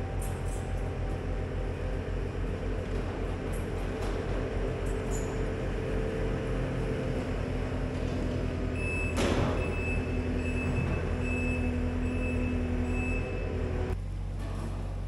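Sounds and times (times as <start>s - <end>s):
loader engine running: 0.0s - 15.0s
reverse alarm beeping: 8.7s - 13.7s.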